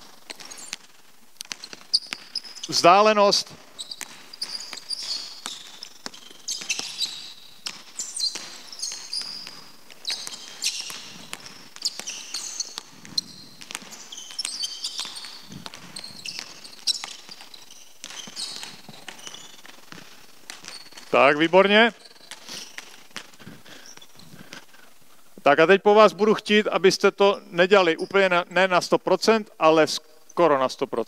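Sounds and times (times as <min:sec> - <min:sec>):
sneakers squeaking on floor: 0:00.0 - 0:24.9, 0:25.6 - 0:30.7
basketball bouncing on hardwood: 0:03.5 - 0:21.2.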